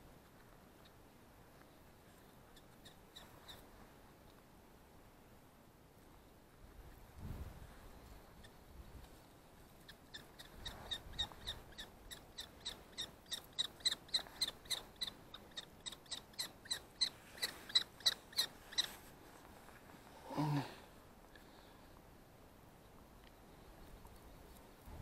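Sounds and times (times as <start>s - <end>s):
kestrel calling: 2.5s - 3.7s, 9.8s - 19.0s.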